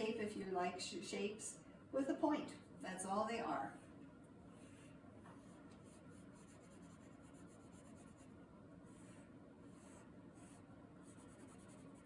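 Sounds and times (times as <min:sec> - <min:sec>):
crayon scratching on paper: 0:05.4 - 0:12.0.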